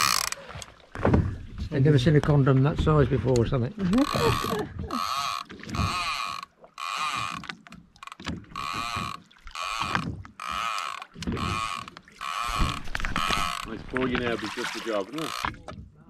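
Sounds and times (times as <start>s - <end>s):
fishing reel gears whirring: 0.0s - 0.4s, 4.0s - 13.7s, 15.2s - 15.5s.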